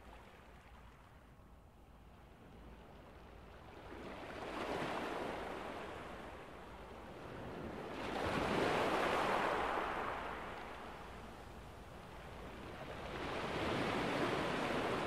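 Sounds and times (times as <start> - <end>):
ocean waves breaking: 3.8 - 15.0.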